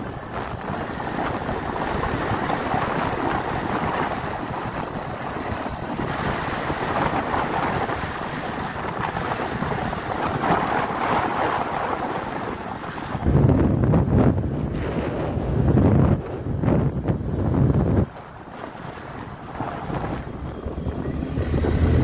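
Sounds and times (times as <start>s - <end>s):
road and engine noise: 0.0s - 22.0s
wind buffeting microphone: 0.0s - 22.0s.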